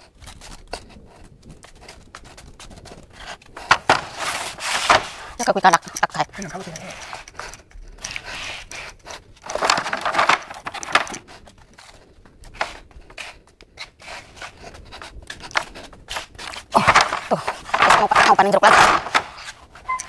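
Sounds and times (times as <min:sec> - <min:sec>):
plastic crates knocking and scraping: 0:03.6 - 0:05.4, 0:09.4 - 0:11.5, 0:15.0 - 0:19.9.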